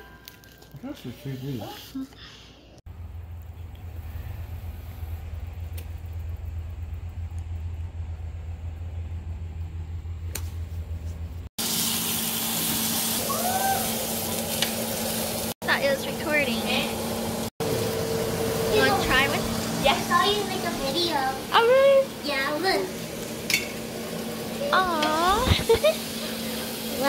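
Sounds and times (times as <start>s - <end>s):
low hum: 2.9s - 11.5s.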